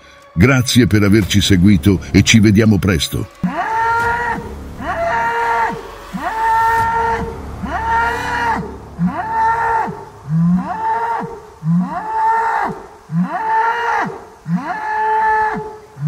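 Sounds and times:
bull bellowing: 3.3s - 15.6s.

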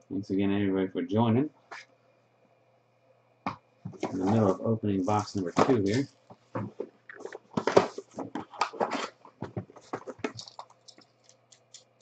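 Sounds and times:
faint low hum: 0.0s - 12.0s
wrapper crinkling and rustling: 5.1s - 11.8s.

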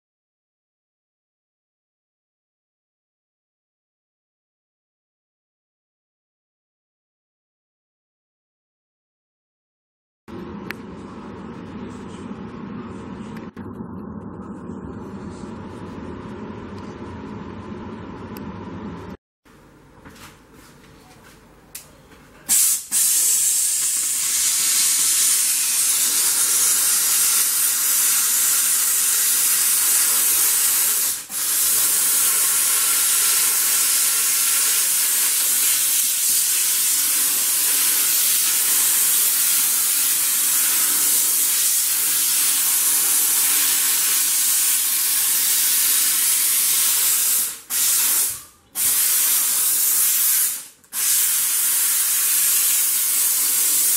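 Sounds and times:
steam cleaner hissing: 22.5s - 53.9s.

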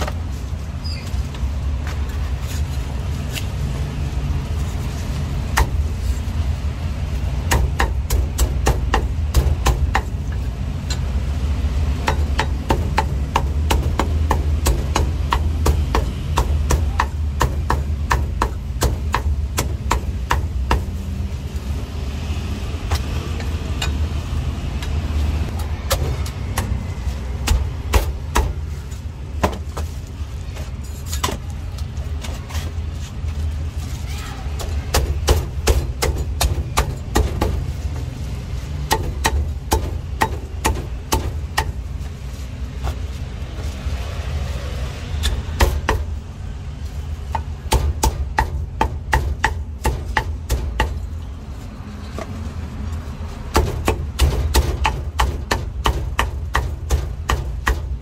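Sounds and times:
cleaver chopping on wooden block: 5.6s - 5.8s, 38.9s - 41.8s.

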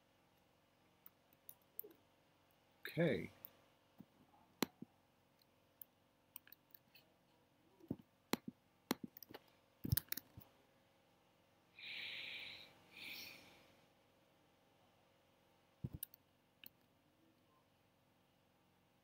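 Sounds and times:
mouse and keyboard clicks: 6.4s - 7.0s, 7.9s - 10.4s, 15.8s - 16.8s
short breathy hiss: 11.8s - 13.8s.

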